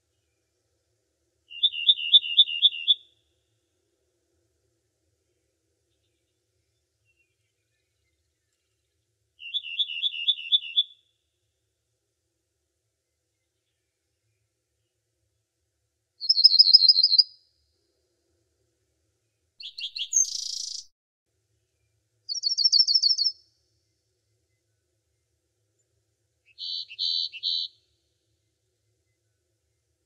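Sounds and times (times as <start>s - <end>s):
songbird trilling and chirping: 1.5s - 3.0s, 9.4s - 11.0s, 16.2s - 17.4s, 19.6s - 20.9s, 22.3s - 23.4s, 26.5s - 27.8s.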